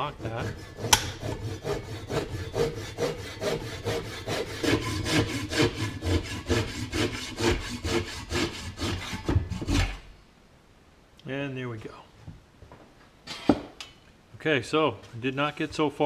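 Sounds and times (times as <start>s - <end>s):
handsaw sawing wood: 0.0s - 10.0s.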